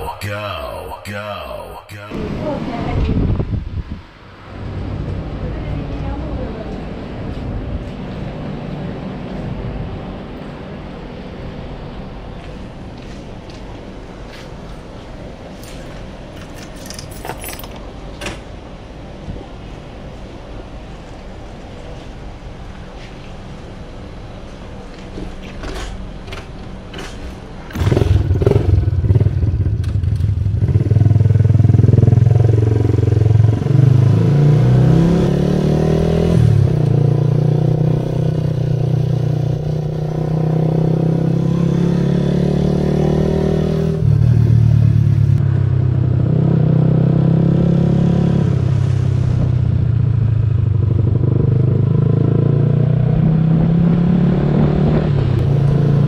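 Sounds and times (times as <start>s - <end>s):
scooter engine revving: 27.7s - 44.7s.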